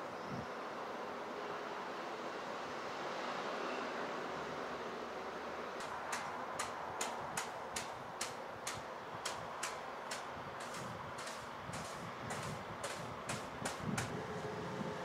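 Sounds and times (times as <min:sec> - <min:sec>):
steady background hiss: 0:00.0 - 0:15.0
sharp regular ticking: 0:05.8 - 0:14.1.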